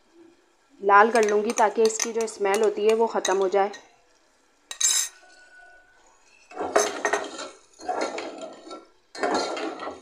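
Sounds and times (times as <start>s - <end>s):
ladle scraping metal pot: 4.7s - 10.0s.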